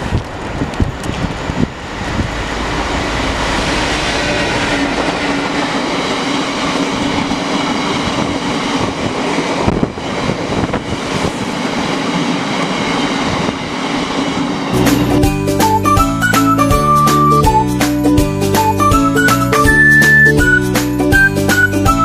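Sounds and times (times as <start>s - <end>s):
diesel locomotive passing: 0.0s - 22.0s.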